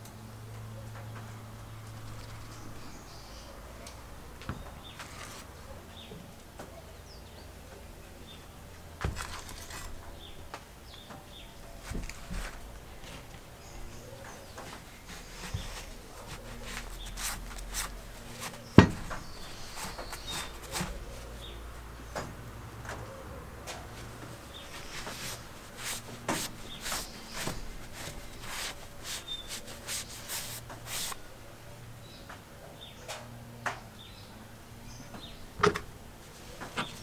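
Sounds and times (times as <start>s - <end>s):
cloth rubbing on metal: 1.8s - 3.2s, 11.6s - 21.6s, 24.0s - 31.3s.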